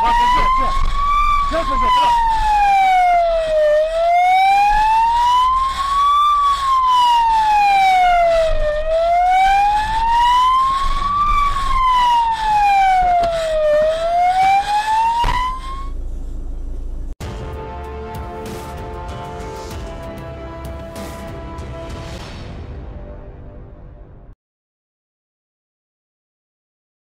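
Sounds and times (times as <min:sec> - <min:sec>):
police siren wailing: 0:00.0 - 0:16.0.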